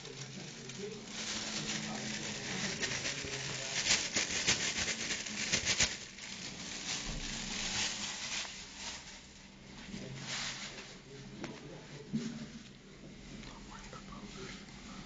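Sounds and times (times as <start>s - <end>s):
plastic bag crackling: 0.0s - 10.8s.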